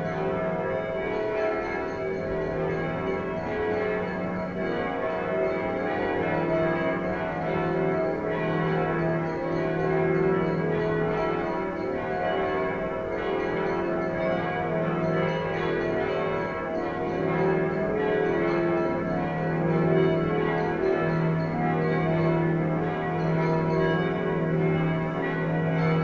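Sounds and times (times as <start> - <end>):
church bells pealing: 0.0 - 26.0.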